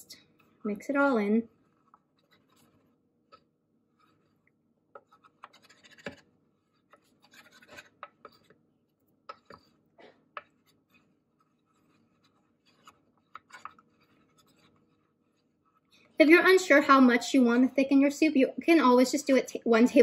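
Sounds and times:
wooden spoon scraping metal bowl: 0:01.5 - 0:08.6, 0:09.2 - 0:16.2.

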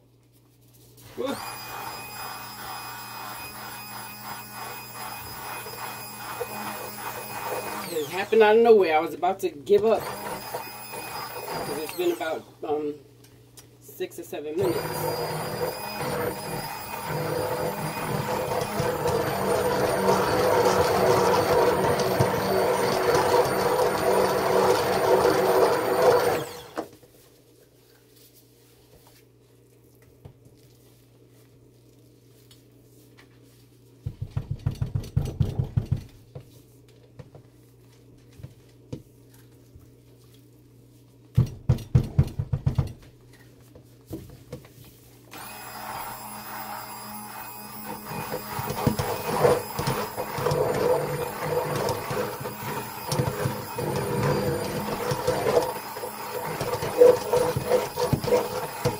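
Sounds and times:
stick blender motor whine: 0:01.1 - 0:08.8, 0:09.8 - 0:12.8, 0:14.6 - 0:26.9, 0:45.3 - 0:58.9
spatula knocking and scraping pot: 0:48.2 - 0:58.9.

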